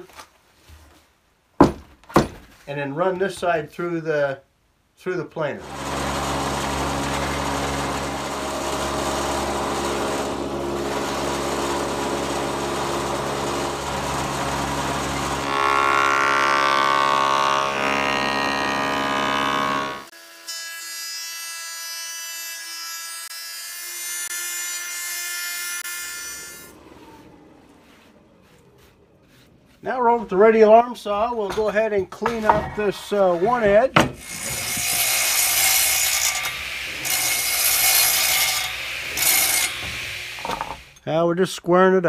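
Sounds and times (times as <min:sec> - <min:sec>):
planer cutting wood: 0:05.6 - 0:28.3, 0:34.1 - 0:41.0.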